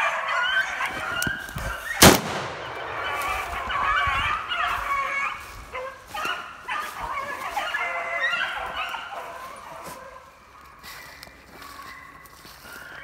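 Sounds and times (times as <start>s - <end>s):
dogs baying: 0.0s - 2.0s, 2.9s - 13.0s.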